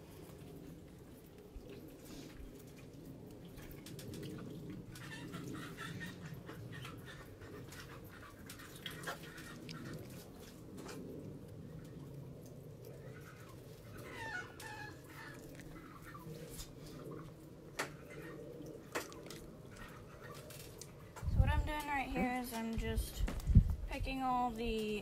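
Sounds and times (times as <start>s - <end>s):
chickens clucking: 4.9s - 10.4s.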